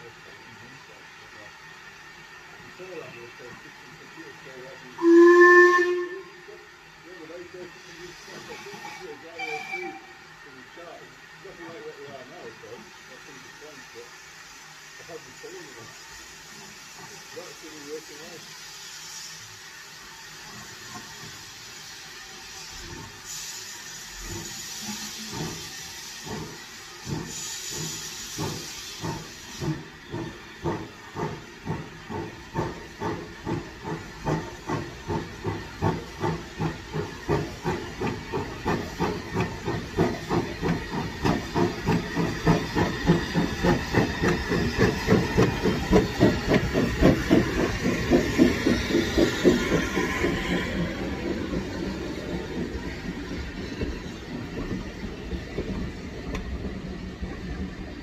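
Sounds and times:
steam hissing: 0:00.0 - 0:58.0
steam locomotive chuffing: 0:00.0 - 0:58.0.

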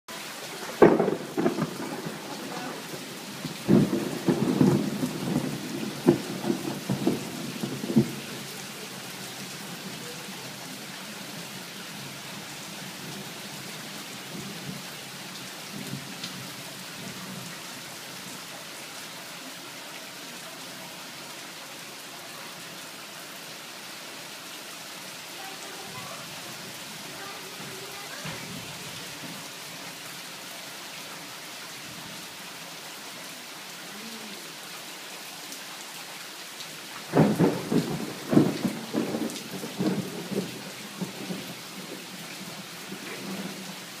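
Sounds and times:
heavy rain on tiles: 0:00.0 - 0:44.0
thunder cracks and rumbles: 0:00.7 - 0:03.1, 0:03.7 - 0:08.2, 0:37.1 - 0:41.9.

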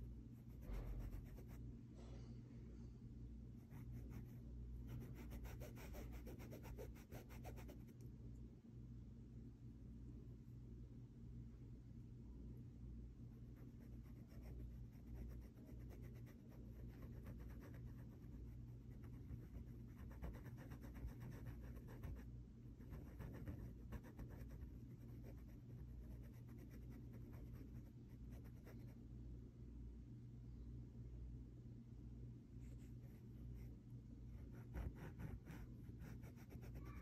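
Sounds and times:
sponge scratching on fabric: 0:00.5 - 0:01.6, 0:03.7 - 0:07.8, 0:34.4 - 0:37.0.

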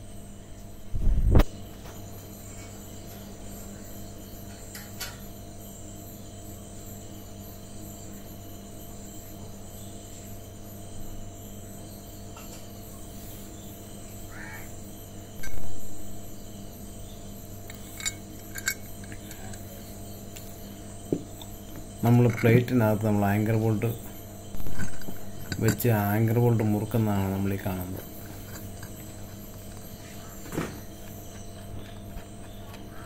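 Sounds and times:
low hum: 0:15.3 - 0:33.0
metallic clinks: 0:17.4 - 0:20.3, 0:21.3 - 0:32.6.

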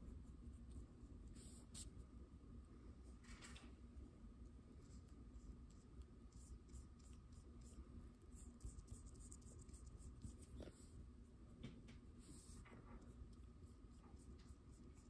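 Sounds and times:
paintbrush scratching on paper: 0:00.0 - 0:02.0, 0:04.8 - 0:11.0, 0:12.2 - 0:15.0
faint steady hum: 0:00.0 - 0:15.0.

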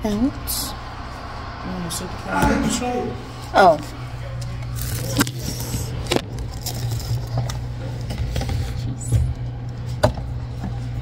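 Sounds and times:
steady low hum: 0:00.0 - 0:04.3.

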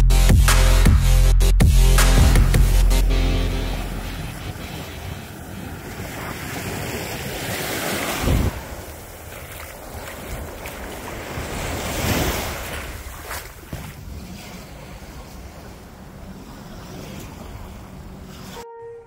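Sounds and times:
small waves on sandy beach: 0:03.4 - 0:18.6
wind gusting on microphone: 0:03.9 - 0:18.6.

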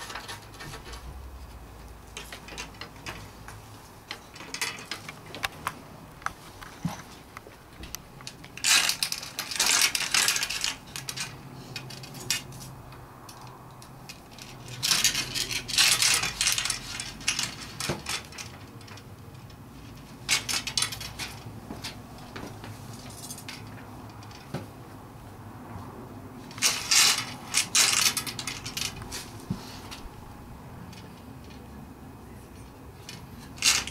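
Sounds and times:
wood and metal parts clinking: 0:02.1 - 0:03.4, 0:04.0 - 0:05.8, 0:07.8 - 0:24.5, 0:26.5 - 0:30.1, 0:32.6 - 0:33.9.

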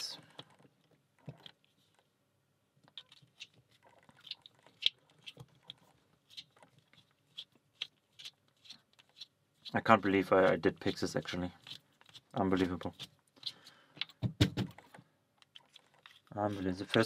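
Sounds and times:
screwdriver clicking and scraping metal: 0:02.9 - 0:17.0.

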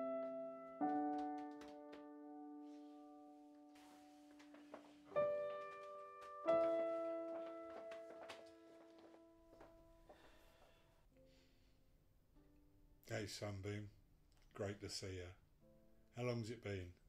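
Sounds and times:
soft piano chords: 0:00.0 - 0:10.6.

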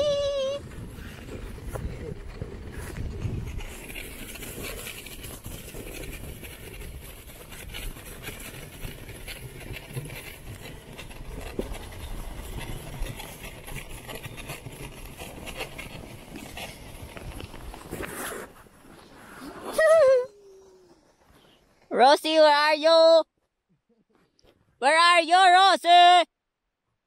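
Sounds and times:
wind rumble on microphone: 0:00.0 - 0:17.9
sled runners scraping on snow: 0:00.0 - 0:22.3.

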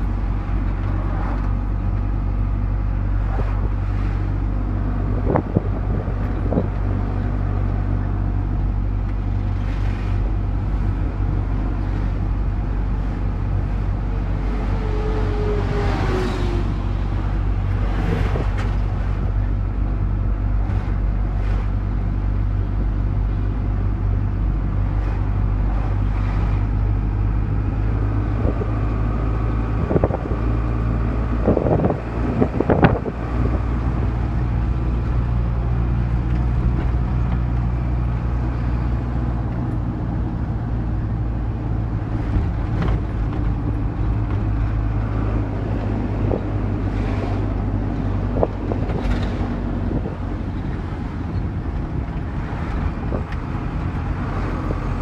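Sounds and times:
vehicle engine and road noise: 0:00.0 - 0:55.0.

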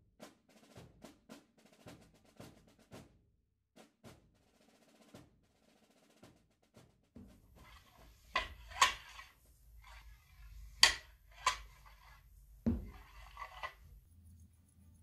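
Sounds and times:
hard objects clicking and knocking: 0:07.2 - 0:14.0
dull knock: 0:12.7 - 0:13.0.

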